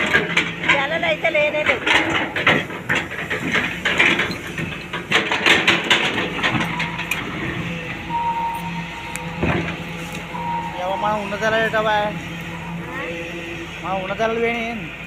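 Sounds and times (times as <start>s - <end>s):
knocking and scraping: 0.0s - 8.0s
excavator diesel engine: 0.0s - 15.0s
brief high tone: 7.6s - 14.2s.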